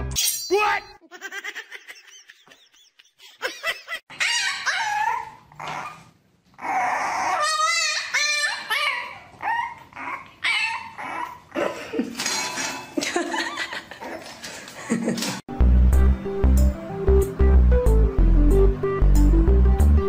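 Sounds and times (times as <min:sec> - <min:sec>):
puppy whining and howling: 0:04.1 - 0:11.6.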